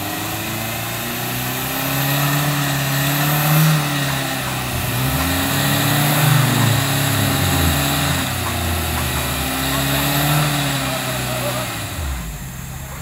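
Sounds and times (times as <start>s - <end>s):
off-road engine revving under load: 0.0s - 13.0s.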